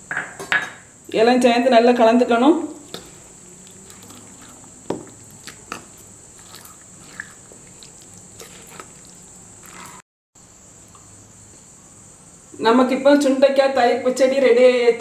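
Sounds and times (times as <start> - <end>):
background hum: 0.0 - 15.0
wet squelching of stirring: 2.7 - 10.0.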